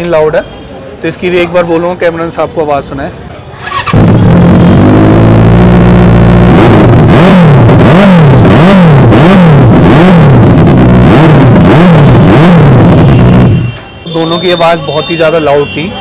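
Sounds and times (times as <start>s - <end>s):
loud motorcycle engine revving: 3.6s - 13.7s.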